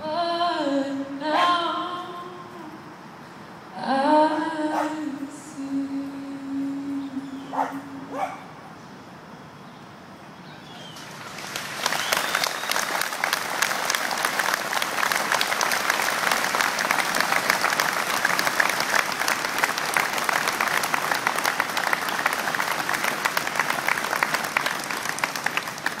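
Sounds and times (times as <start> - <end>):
crowd applauding: 10.8 - 26.0.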